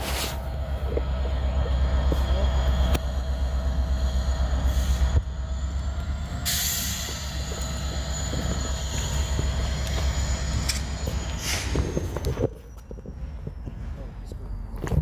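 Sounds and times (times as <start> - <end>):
diesel locomotive rumble: 0.0 - 15.0
train wheel squeal: 3.6 - 15.0.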